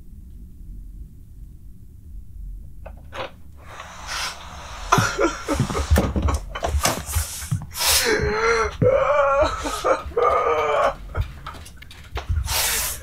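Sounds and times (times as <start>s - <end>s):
man sobbing and wailing: 4.8s - 13.0s.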